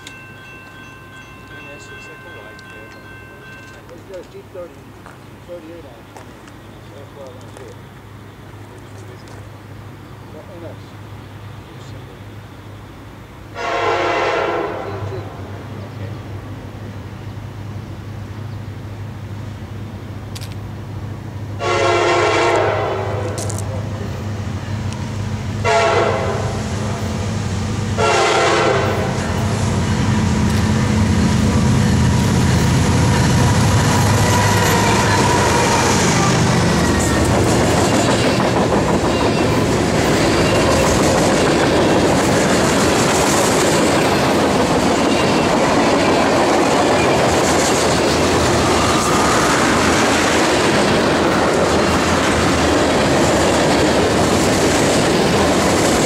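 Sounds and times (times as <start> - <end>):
diesel locomotive engine rumble: 0.0 - 56.0
train horn: 13.6 - 15.5, 21.6 - 23.4, 25.6 - 26.6, 28.0 - 29.4, 33.9 - 36.6
train wheels clattering over rail joints: 36.5 - 56.0.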